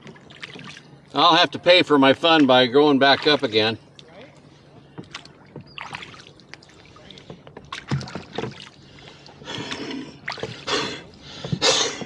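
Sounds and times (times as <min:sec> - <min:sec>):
oar blades splashing water: 0:00.0 - 0:03.8, 0:04.8 - 0:12.0
oars knocking in oarlocks: 0:07.2 - 0:08.7, 0:09.5 - 0:12.0.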